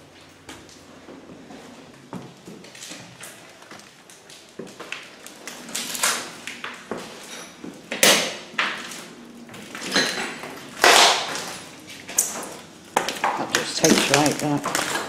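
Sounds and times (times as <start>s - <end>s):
footsteps crunching over debris: 0.0s - 7.9s, 8.7s - 15.0s.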